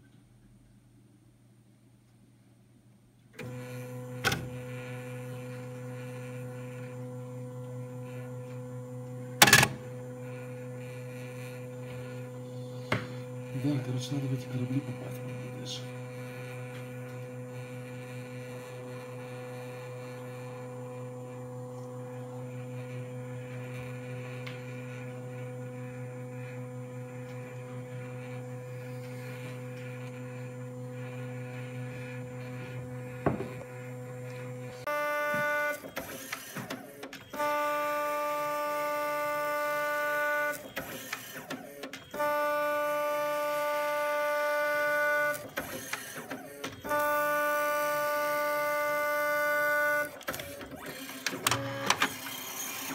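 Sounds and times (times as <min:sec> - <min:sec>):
printer motors whining: 0:03.4 - 0:52.9
printer click: 0:09.4 - 0:09.8, 0:49.9 - 0:52.9.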